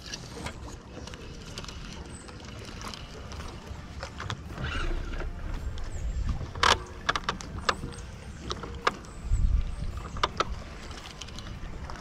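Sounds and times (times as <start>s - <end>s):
wind and water rumble: 0.0s - 12.0s.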